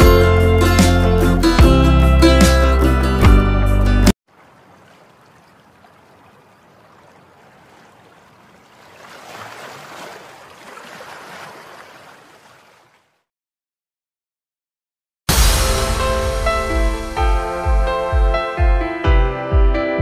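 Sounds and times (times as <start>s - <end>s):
water splashing and rushing: 4.2s - 13.3s.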